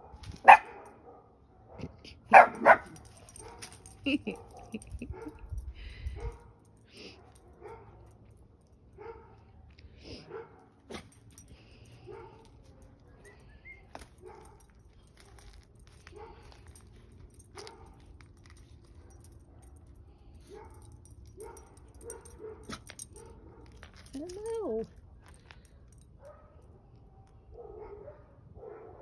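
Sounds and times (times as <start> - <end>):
dogs barking: 0.0 - 5.4, 20.4 - 23.8, 27.5 - 29.0.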